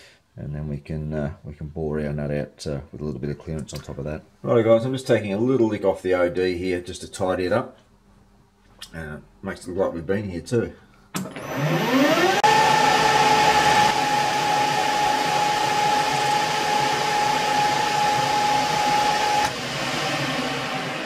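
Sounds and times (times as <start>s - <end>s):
lathe motor whine: 11.2s - 21.0s.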